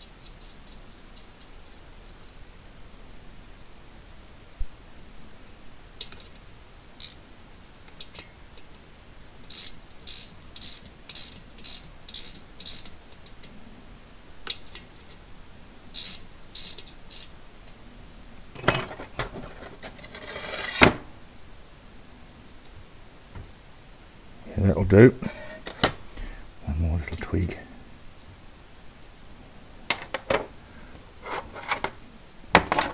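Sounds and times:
socket ratchet clicking: 7.0 - 7.2, 9.5 - 13.4, 16.0 - 17.3
scraping rustle: 18.8 - 20.9, 31.2 - 32.0.

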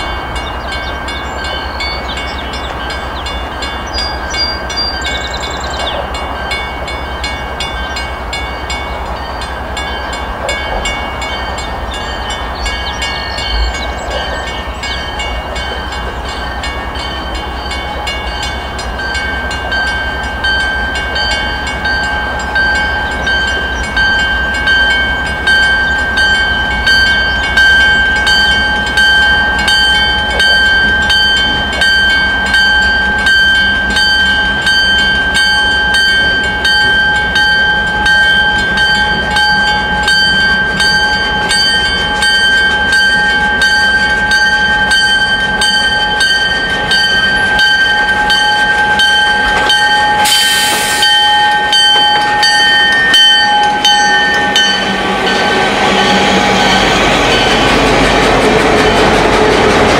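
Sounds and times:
level crossing bell ringing: 0.0 - 58.0
diesel locomotive engine passing: 0.0 - 59.9
brief hiss: 50.3 - 51.1.

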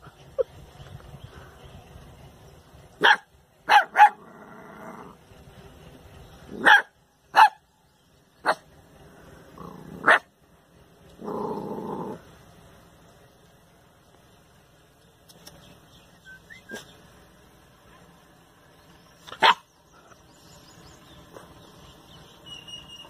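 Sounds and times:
puppy barking: 3.0 - 4.3, 6.5 - 7.7, 8.4 - 8.7, 10.0 - 10.3, 19.3 - 19.7.

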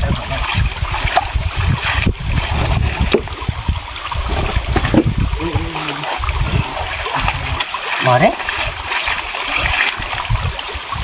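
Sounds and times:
low rumble: 0.0 - 7.7
stream water running: 0.0 - 11.0.

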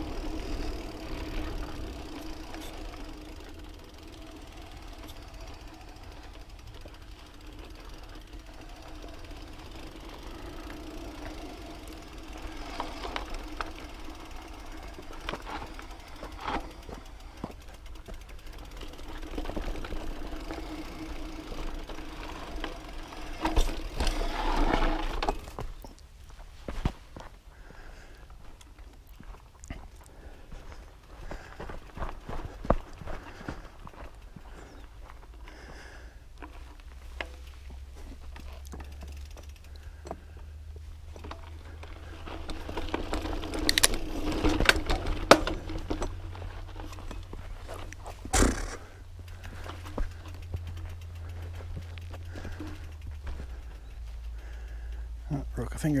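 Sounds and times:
bike rattling and knocking: 0.0 - 26.0, 30.2 - 56.0
tyres crunching on gravel: 0.0 - 27.7, 41.1 - 54.7.

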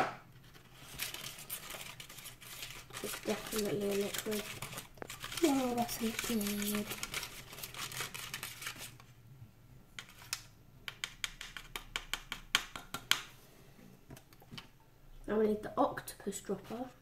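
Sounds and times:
plastic spoon scraping tray: 0.4 - 9.0
clicks and taps: 10.0 - 13.3.

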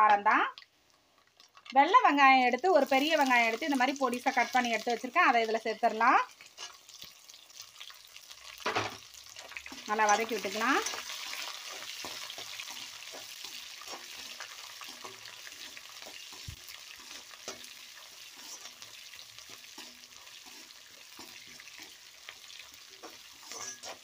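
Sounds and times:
onions sizzling in hot oil: 0.0 - 24.0
spatula scraping and tapping pan: 8.6 - 24.0.

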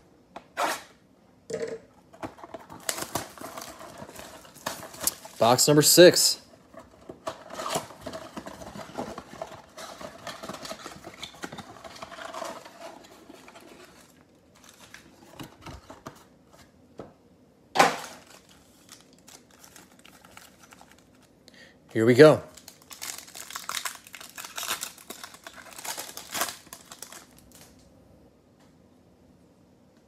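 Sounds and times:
foil packs rustling and crinkling: 2.4 - 16.2, 18.0 - 21.3, 22.0 - 27.8.

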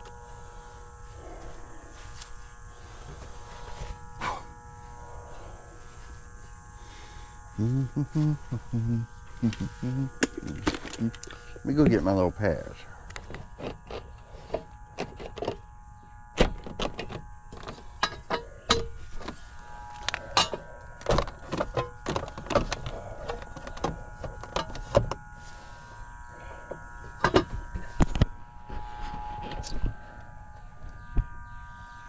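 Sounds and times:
steady hum: 0.0 - 32.0
knocks and clicks of gear handled: 20.0 - 25.2.

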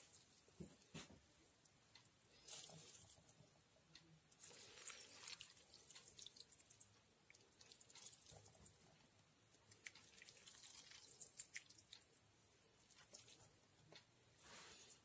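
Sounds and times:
small irregular clicks: 0.0 - 14.2
wet squelches: 4.3 - 13.5.

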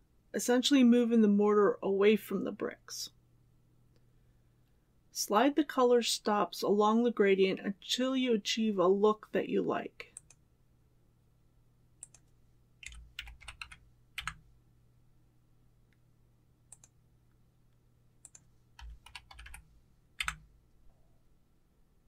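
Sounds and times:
low electrical hum: 0.0 - 22.0
computer mouse and key clicks: 10.2 - 10.4, 12.0 - 14.4, 16.7 - 17.0, 18.2 - 19.6, 20.2 - 20.4.

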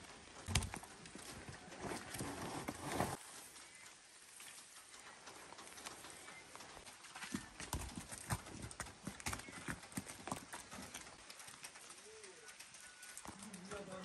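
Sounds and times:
hooves on stony path: 0.0 - 14.0.

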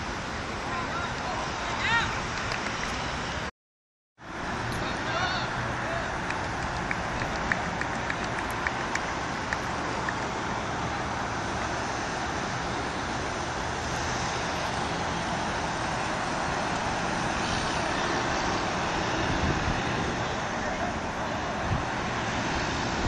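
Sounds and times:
road traffic noise: 0.0 - 3.5, 4.2 - 23.0.

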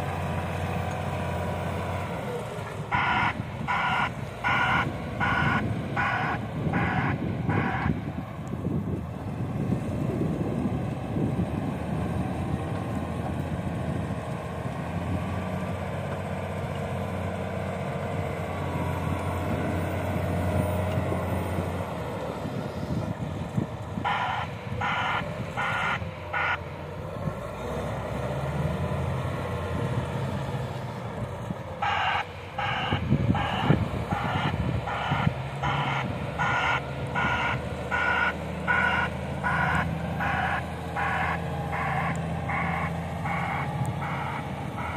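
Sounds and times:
wheel loader diesel engine: 0.0 - 44.9
reversing alarm beeping: 2.9 - 7.9, 31.8 - 44.9.

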